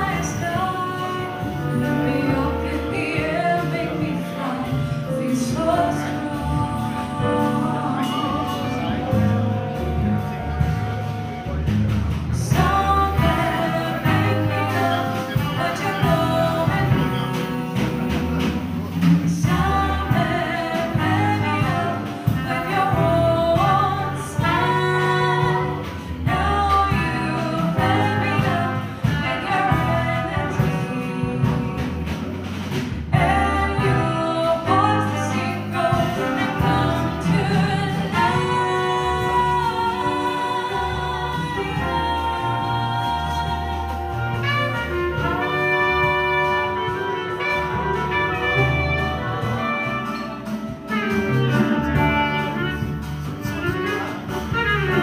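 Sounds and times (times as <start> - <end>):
woman singing: 0.0 - 9.2, 12.4 - 32.4, 33.1 - 52.9
bass: 0.0 - 55.0
drums: 0.0 - 55.0
horn section: 0.0 - 55.0
piano: 0.0 - 55.0.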